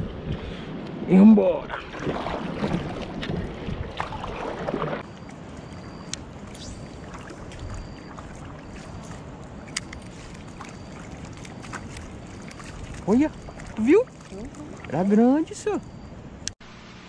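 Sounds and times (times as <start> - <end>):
wind: 0.0 - 17.0
paddle strokes splashing: 1.7 - 16.0
water washing: 1.7 - 16.1
faint high peep: 5.0 - 16.6.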